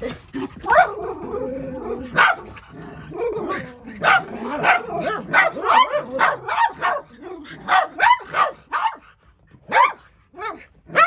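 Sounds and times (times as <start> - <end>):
small dogs barking: 0.0 - 11.0.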